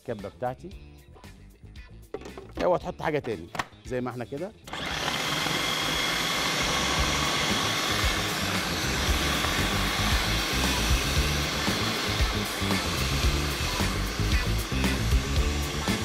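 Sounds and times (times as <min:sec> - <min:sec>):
food processor motor whine: 0:04.7 - 0:16.0.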